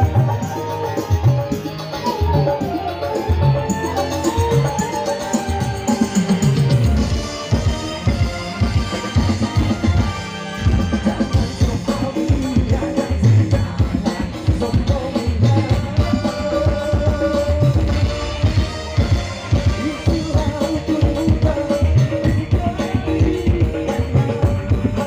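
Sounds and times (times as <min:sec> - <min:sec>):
bass guitar: 0:00.0 - 0:25.0
drum kit beat: 0:00.0 - 0:25.0
electric guitar: 0:00.0 - 0:25.0
keyboard: 0:00.0 - 0:25.0
man singing: 0:10.8 - 0:25.0.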